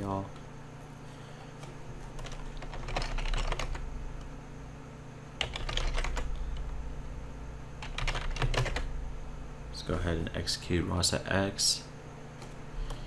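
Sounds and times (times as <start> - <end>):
typing on keyboard: 2.1 - 3.8, 5.4 - 6.3, 7.8 - 8.9.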